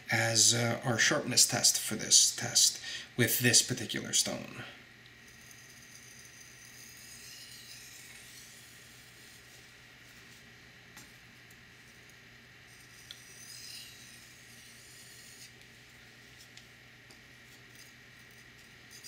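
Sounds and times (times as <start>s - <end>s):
knife blade rubbing on whetstone: 5.2s - 9.5s, 12.7s - 15.6s, 17.5s - 19.0s.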